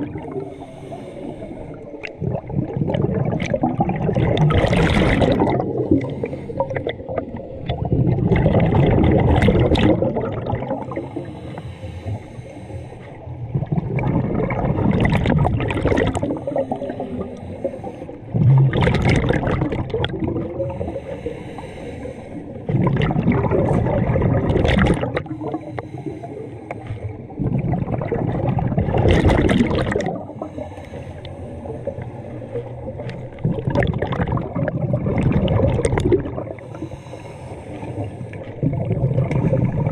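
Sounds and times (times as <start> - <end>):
exhaled bubbles underwater: 0.0 - 39.9
regulator inhale hiss: 0.4 - 2.0, 5.9 - 6.7, 10.8 - 13.2, 16.4 - 18.3, 20.7 - 22.7, 25.2 - 27.3, 30.3 - 33.3, 36.6 - 38.6.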